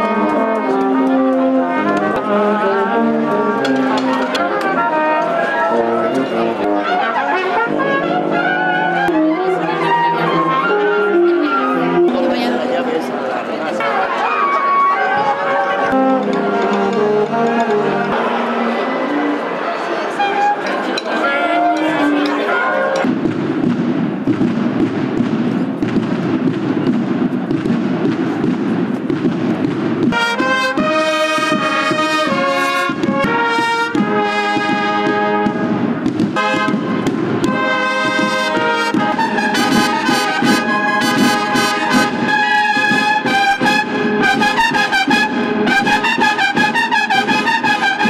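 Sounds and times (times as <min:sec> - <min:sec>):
brass band playing a march: 0:00.0 - 0:48.0.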